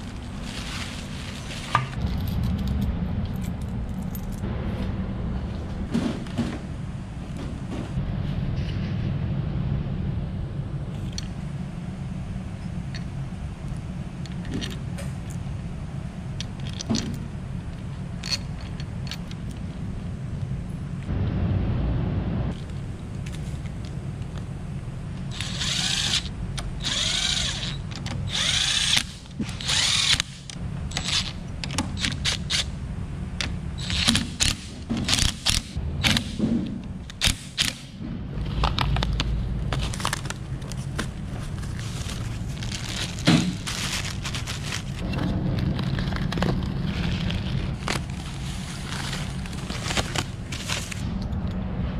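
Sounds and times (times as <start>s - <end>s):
cordless driver tightening bolts: 25.3s - 32.7s.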